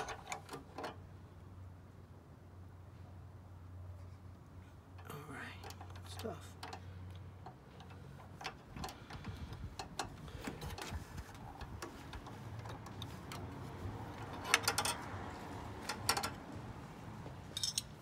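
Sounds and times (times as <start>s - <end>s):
wrench ticking and clicking on bolt: 4.9s - 13.5s, 14.2s - 16.5s
tool metal clinking: 14.2s - 15.1s, 17.5s - 18.0s.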